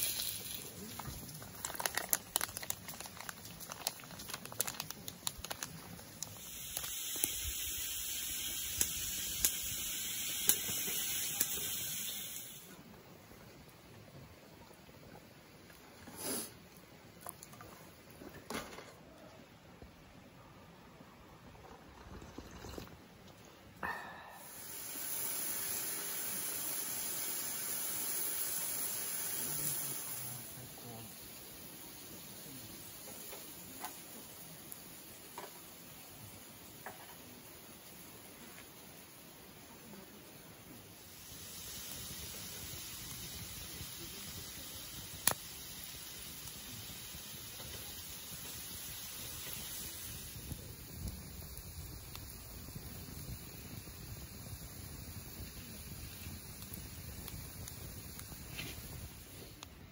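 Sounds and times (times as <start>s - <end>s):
foil sachet crinkling: 0.0s - 7.4s
steady hiss of heating soup: 0.0s - 59.9s
sharp pops: 8.4s - 12.5s, 45.0s - 45.6s.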